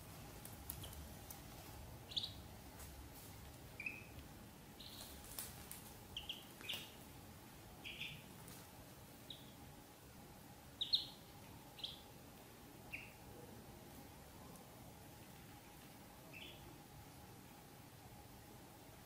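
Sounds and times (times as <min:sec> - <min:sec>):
ducklings peeping: 0:00.4 - 0:02.5, 0:03.6 - 0:04.2, 0:04.8 - 0:07.2, 0:07.8 - 0:08.4, 0:09.2 - 0:09.7, 0:10.7 - 0:12.2, 0:12.8 - 0:13.3, 0:15.2 - 0:16.7.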